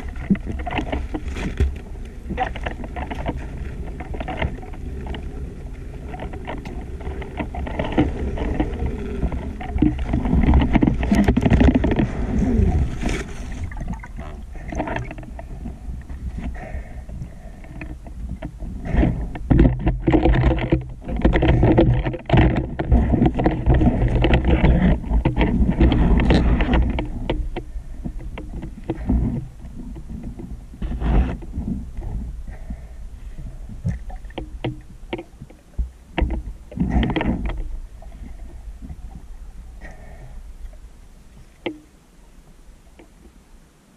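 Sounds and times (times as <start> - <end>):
knocks and crackles: 0.0 - 41.9
underwater rushing water: 0.0 - 43.9.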